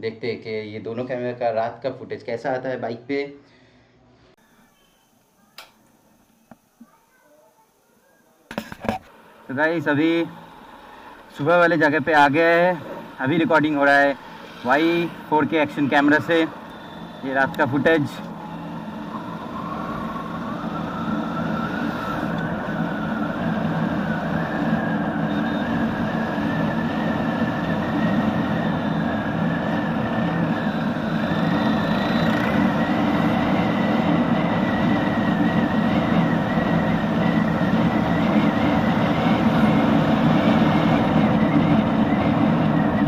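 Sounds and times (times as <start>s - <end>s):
rising whine: 9.2s - 43.0s.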